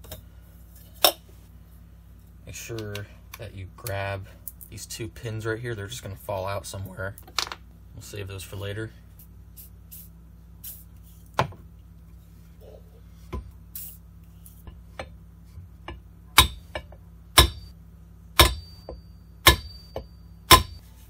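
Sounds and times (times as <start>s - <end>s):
hammer tapping metal: 15.8s - 17.7s, 18.4s - 20.8s.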